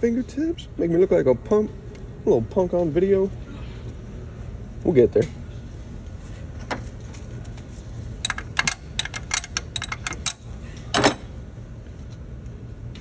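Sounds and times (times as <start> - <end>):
wrench clicking on metal fitting: 8.2 - 10.4
metal clunk: 10.9 - 11.3.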